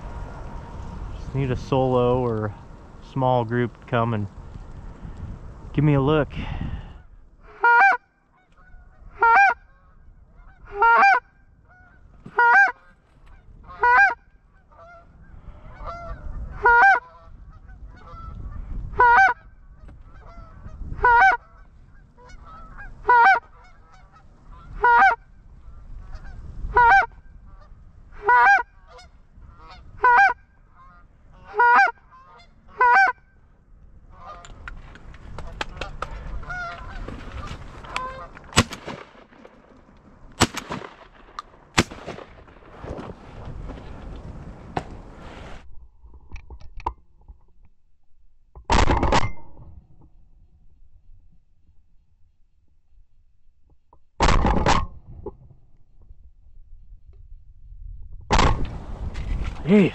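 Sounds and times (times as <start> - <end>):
wind rumbling on microphone: 0.0 - 7.6, 8.4 - 47.8, 54.3 - 59.9
goose honks: 7.4 - 15.1, 15.7 - 18.3, 19.0 - 19.5, 20.1 - 33.3, 34.1 - 34.5, 35.5 - 38.8.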